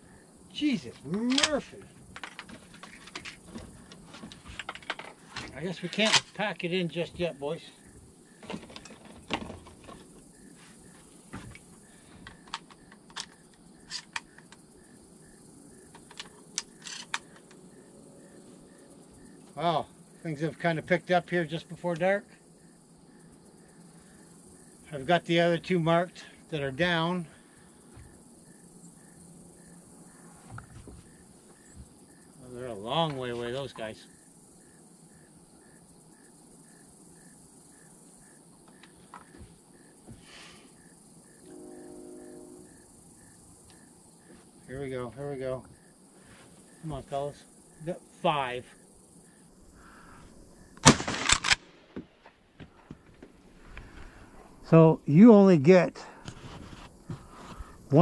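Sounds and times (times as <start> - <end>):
crickets chirping: 0.0 - 58.0
metallic clicks of shotgun reloading: 50.8 - 51.6.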